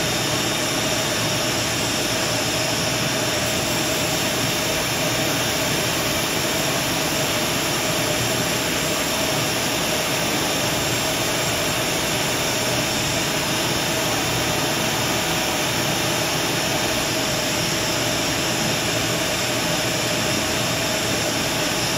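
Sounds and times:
shop vacuum running: 0.0 - 21.9.

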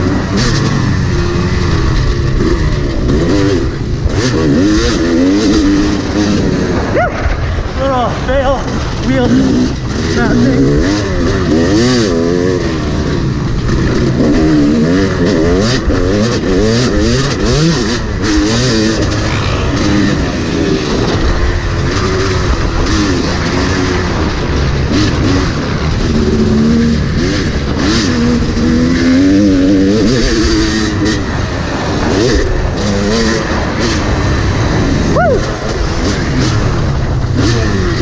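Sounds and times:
motocross bike engine revving: 0.0 - 38.0.

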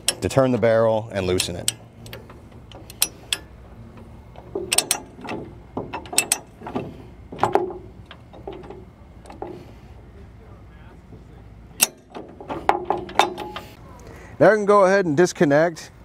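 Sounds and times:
sharp metal clicks and clacks: 1.2 - 9.6, 11.8 - 13.8.

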